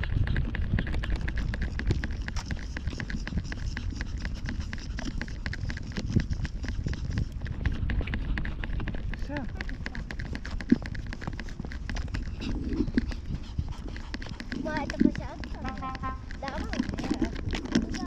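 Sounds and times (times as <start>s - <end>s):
footsteps on paved path: 0.0s - 18.0s
wind rumble on microphone: 0.0s - 18.0s.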